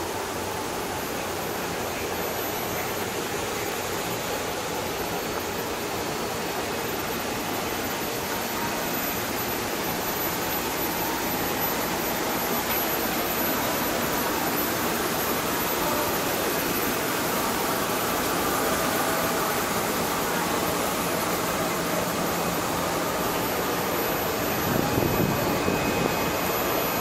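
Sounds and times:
electric train equipment hum: 0:00.0 - 0:27.0.

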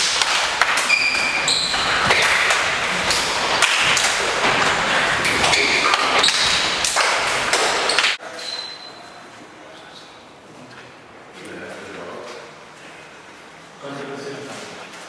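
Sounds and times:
shoe squeaks: 0:00.8 - 0:02.3, 0:05.4 - 0:06.8, 0:07.7 - 0:09.2.

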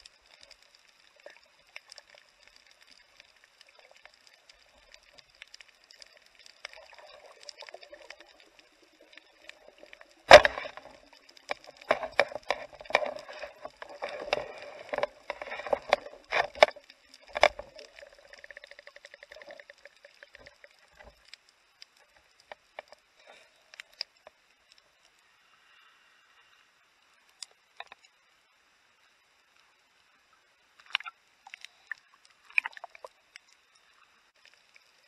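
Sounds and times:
faint underwater clicks: 0:00.0 - 0:35.0
underwater knocks and scraping: 0:04.0 - 0:21.4, 0:22.0 - 0:24.4.

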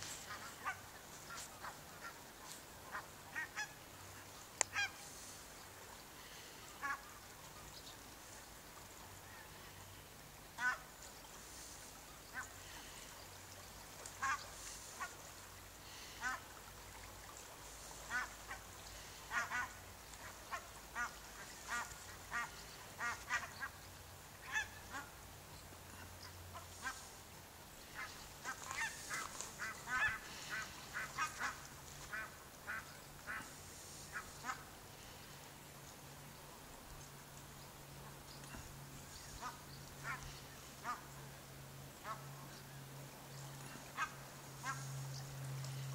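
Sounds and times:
geese honking: 0:00.0 - 0:03.8, 0:10.6 - 0:10.8, 0:14.2 - 0:15.3, 0:24.4 - 0:25.1, 0:27.8 - 0:33.5, 0:43.9 - 0:44.9.

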